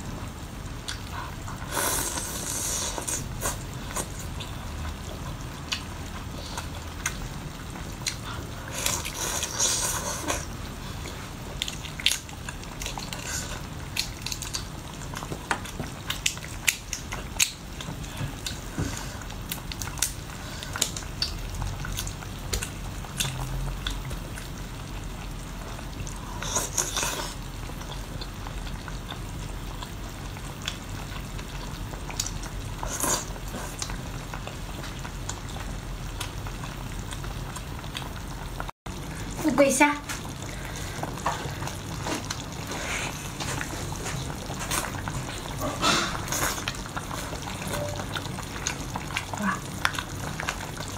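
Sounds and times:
chewing: 0.8 - 7.3, 8.0 - 25.0, 25.7 - 38.1, 40.2 - 50.9
wet slurping: 1.6 - 4.4, 8.1 - 10.5.

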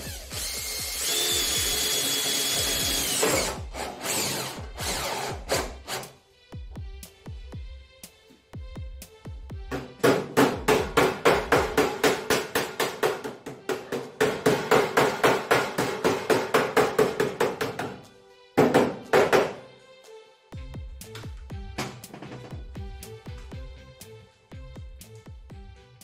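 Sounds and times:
background music: 0.0 - 26.0
hammer on sheet metal: 10.0 - 17.9.

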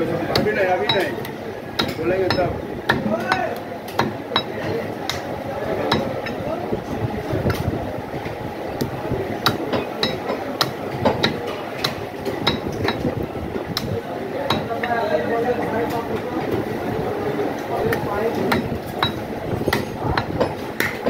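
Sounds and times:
steady background noise: 0.0 - 21.0
meat cleaver chopping on wood: 0.3 - 1.1, 1.8 - 5.2, 9.4 - 13.1.

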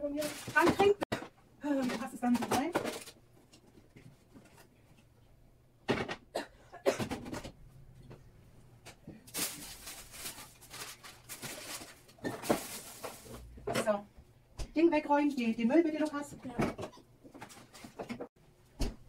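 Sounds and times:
packaging rustling: 0.1 - 1.0, 9.3 - 13.5.

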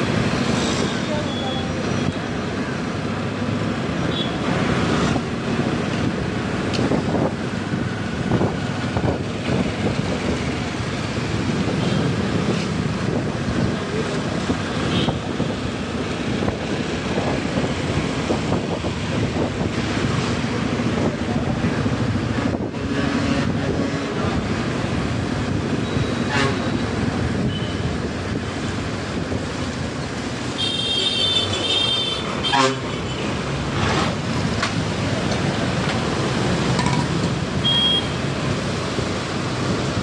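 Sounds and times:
road and traffic noise: 0.0 - 40.0
wind rushing over microphone: 4.8 - 30.5.

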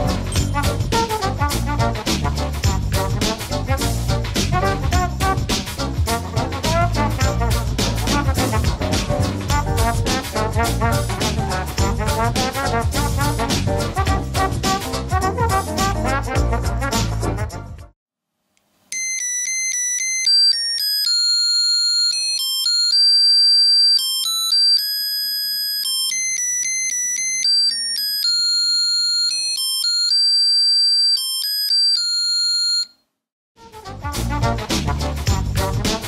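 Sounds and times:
swing music: 0.0 - 18.0, 33.6 - 36.0
piezo buzzer beeping tune: 19.0 - 33.0.

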